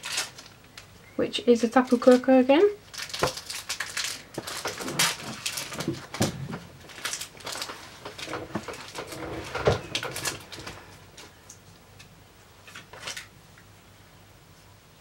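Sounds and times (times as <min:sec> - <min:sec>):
foil pack crinkling: 0:00.0 - 0:00.9, 0:01.6 - 0:11.5, 0:12.6 - 0:13.3.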